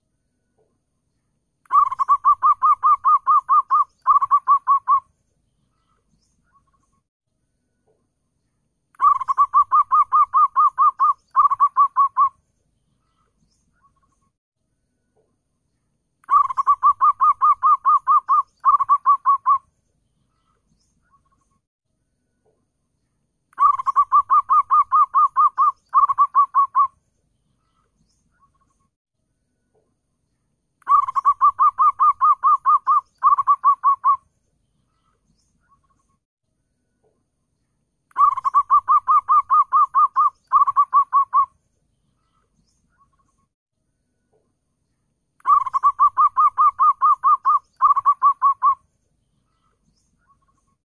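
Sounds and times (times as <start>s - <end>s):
dove cooing: 1.7s - 5.0s, 9.0s - 12.3s, 16.3s - 19.6s, 23.6s - 26.9s, 30.9s - 34.2s, 38.2s - 41.5s, 45.5s - 48.8s.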